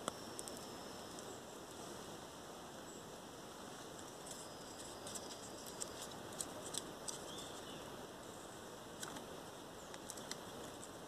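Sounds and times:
faint steady hiss: 0:00.0 - 0:11.0
fire of leaves crackling: 0:00.0 - 0:11.0.

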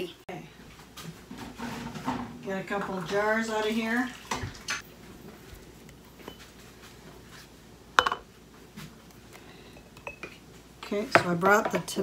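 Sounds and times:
glass jars knocking: 0:08.0 - 0:08.2.

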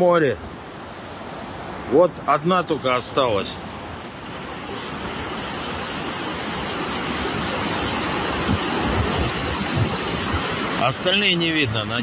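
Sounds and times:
rushing floodwater: 0:00.0 - 0:12.0
surf: 0:00.0 - 0:12.0
wind buffeting microphone: 0:04.3 - 0:11.0.

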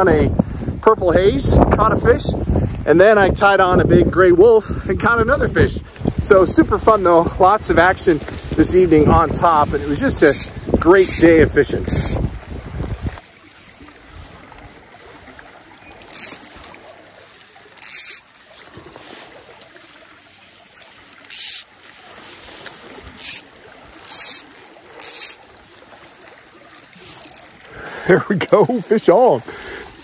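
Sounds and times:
creek running: 0:00.0 - 0:30.0
fly line zipping through rod guides: 0:08.0 - 0:12.3, 0:15.9 - 0:18.3, 0:21.1 - 0:25.5, 0:26.9 - 0:27.7.

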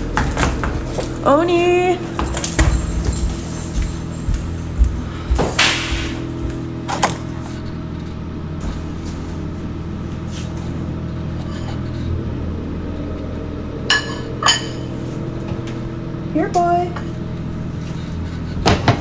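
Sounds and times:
steady low hum: 0:00.0 - 0:19.0.

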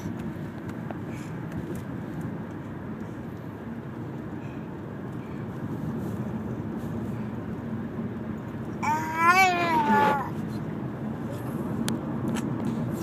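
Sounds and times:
car cabin road rumble: 0:00.0 - 0:13.0.

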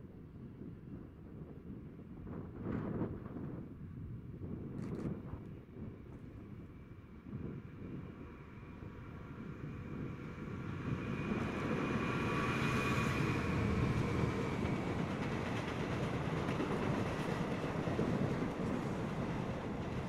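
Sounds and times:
diesel locomotive passing: 0:07.6 - 0:20.0.

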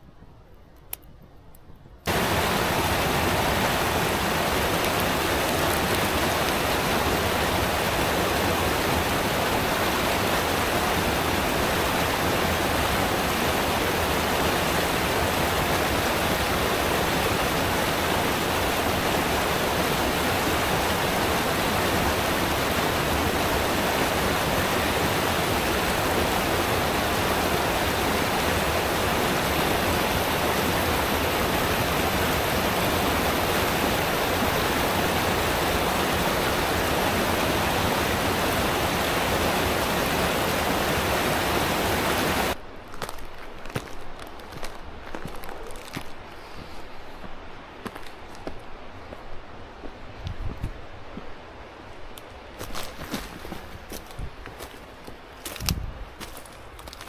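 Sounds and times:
stream rushing over rocks: 0:02.1 - 0:57.0.

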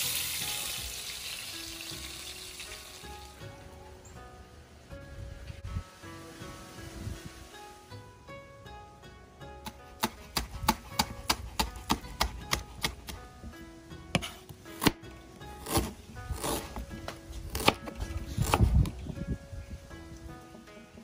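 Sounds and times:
knife chopping on cutting board: 0:09.6 - 0:13.2, 0:15.6 - 0:16.8, 0:17.5 - 0:18.7.

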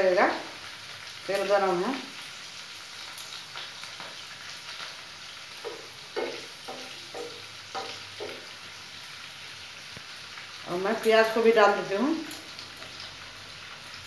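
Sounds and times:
capsicum sizzling in hot oil: 0:00.0 - 0:14.0
spatula stirring against pan: 0:03.0 - 0:09.2.

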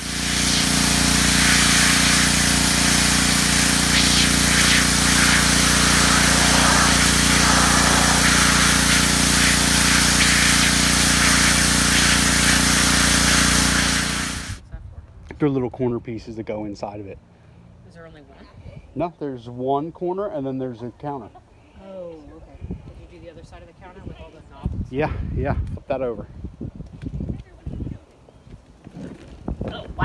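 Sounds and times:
pressure washer engine running: 0:00.0 - 0:14.6
water jet hissing on plastic: 0:00.0 - 0:14.6.

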